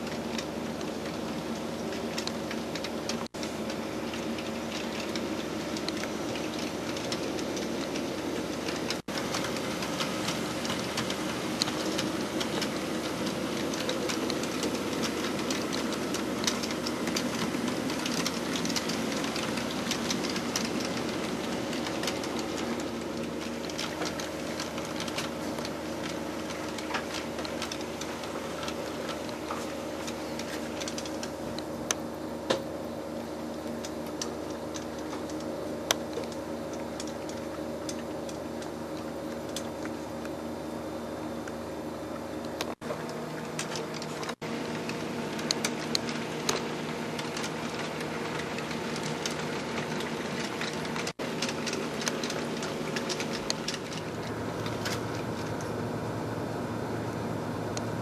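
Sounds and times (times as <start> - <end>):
model train motor hum: 0.0 - 31.7
wheels clicking over rail joints: 0.0 - 58.0.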